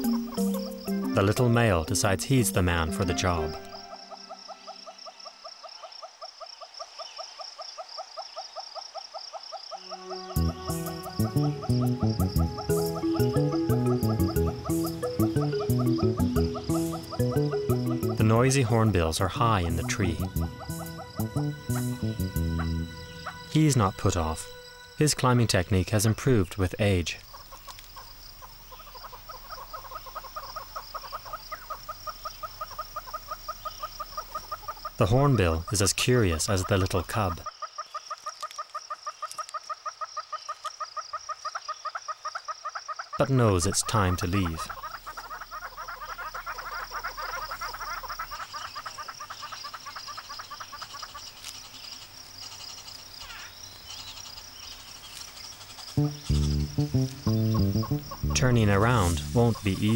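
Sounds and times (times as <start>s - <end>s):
hornbill clucking call: 0.0s - 25.1s, 27.2s - 51.4s, 55.0s - 59.9s
high-pitched insect drone: 9.8s - 18.2s, 19.8s - 26.4s.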